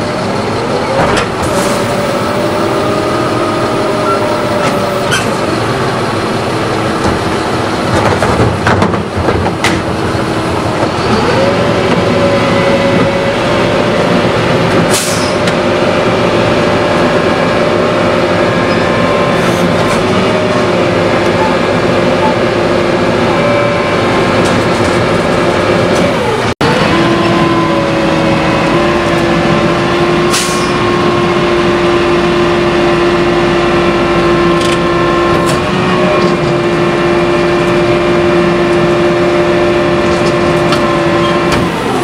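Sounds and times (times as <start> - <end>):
garbage truck hydraulic whine: 0.0 - 8.0, 9.8 - 42.0
cart clanks and knocks: 7.0 - 11.3.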